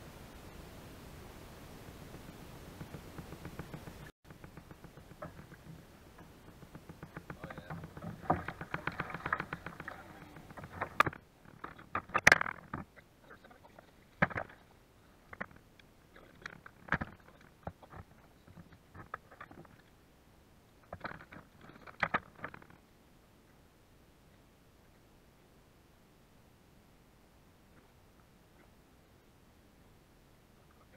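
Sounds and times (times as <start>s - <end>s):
knocks and rattles on plastic: 2.8s - 12.9s, 16.4s - 19.8s
fish thrashing and splashing: 7.7s - 11.1s.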